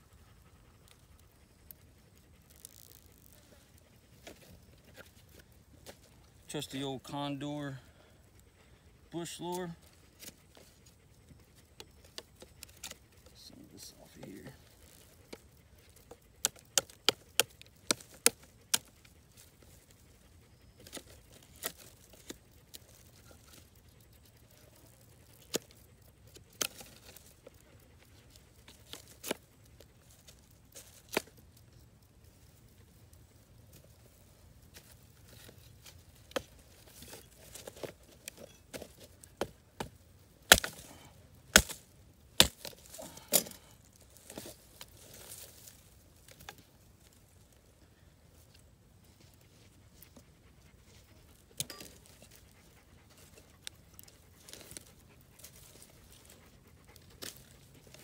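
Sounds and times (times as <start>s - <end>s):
knife scraping bark and wood: 0.6s - 8.1s, 8.7s - 58.0s.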